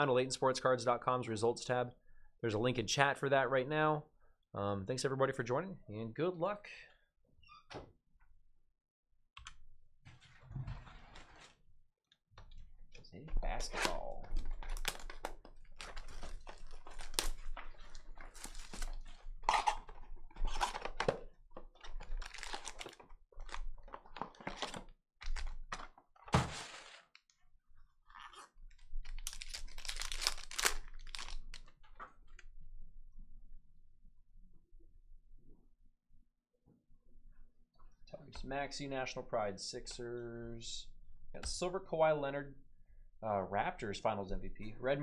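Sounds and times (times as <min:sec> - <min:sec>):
foil wrappers crinkling and tearing: 0:14.3 - 0:20.8, 0:22.0 - 0:25.7, 0:28.8 - 0:31.7.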